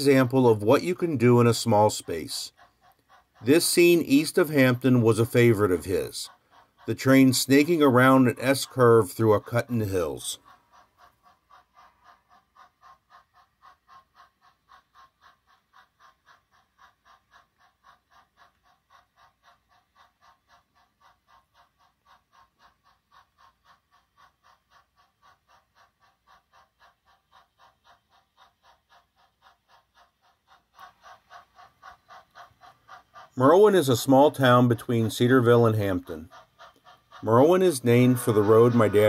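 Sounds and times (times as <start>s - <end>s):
model train pulsing ringing tone: 0.0s - 11.2s, 30.7s - 39.0s.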